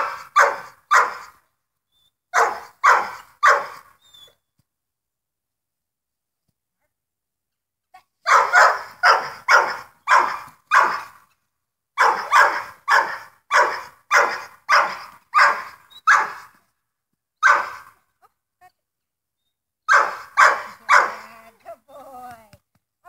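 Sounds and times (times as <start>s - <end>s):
dog barking: 0.0s - 1.4s, 2.3s - 3.9s, 8.2s - 11.2s, 12.0s - 16.5s, 17.4s - 18.0s, 19.9s - 21.3s.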